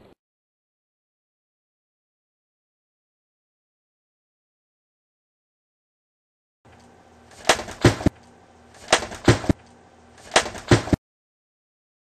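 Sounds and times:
sharp smacks: 0:07.4 - 0:08.2, 0:08.8 - 0:09.6, 0:10.3 - 0:11.0.

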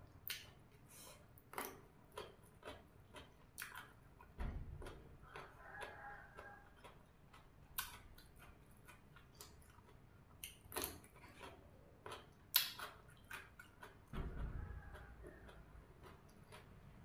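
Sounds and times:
crunching raw vegetables: 0:00.0 - 0:17.0.

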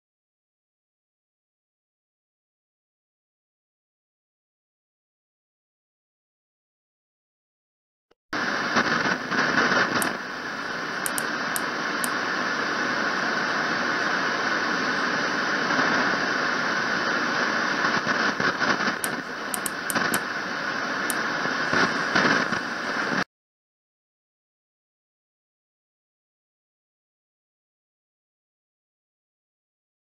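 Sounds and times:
radio static hiss: 0:08.4 - 0:23.3.

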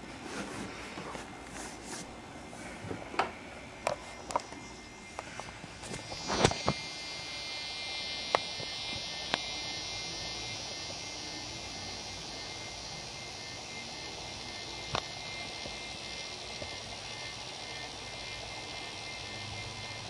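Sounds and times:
high-pitched electrical hum: 0:00.0 - 0:20.0.

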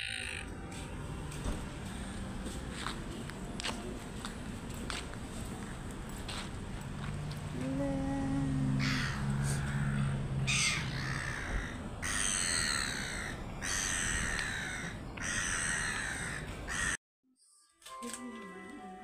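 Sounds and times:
gulls crying: 0:07.6 - 0:17.0.

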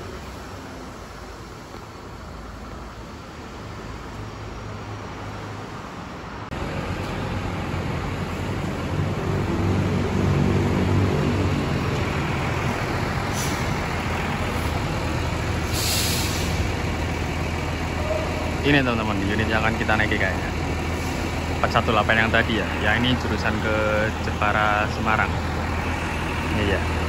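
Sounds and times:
bus diesel engine running: 0:00.0 - 0:27.0
air brakes hissing: 0:13.2 - 0:14.8, 0:15.5 - 0:16.9.

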